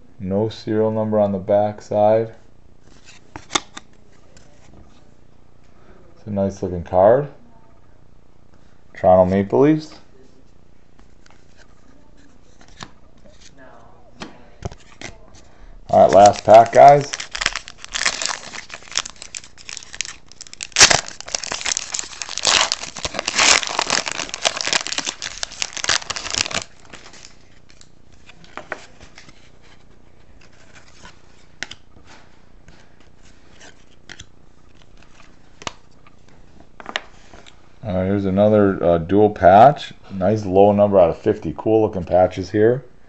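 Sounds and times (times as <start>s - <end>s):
wrapper being torn and crinkled: 15.9s - 27.9s
faint clicks of cards handled: 27.5s - 37.6s.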